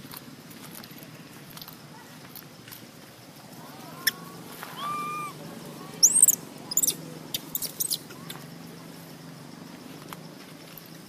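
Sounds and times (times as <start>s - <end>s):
baby monkey calling: 3.9s - 5.4s, 6.0s - 8.4s
monkey squealing: 3.9s - 5.4s, 6.0s - 8.0s.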